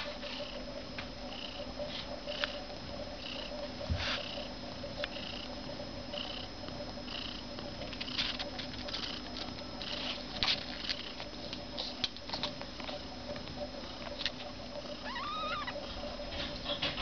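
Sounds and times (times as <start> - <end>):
kitten mewing: 15.0 - 15.8
newborn kittens squeaking: 15.0 - 15.8.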